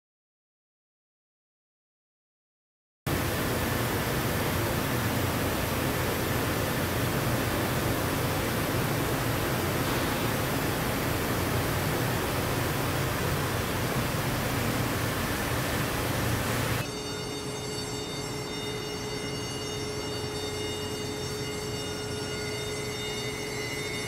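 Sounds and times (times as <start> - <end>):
low hum: 3.1 - 16.8
welding arc hissing: 3.2 - 16.8.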